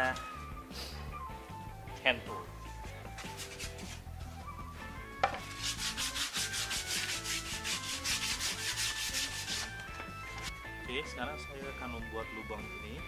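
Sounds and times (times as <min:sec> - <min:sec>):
sandpaper rubbing on plywood: 0:03.2 - 0:04.1, 0:05.5 - 0:09.8.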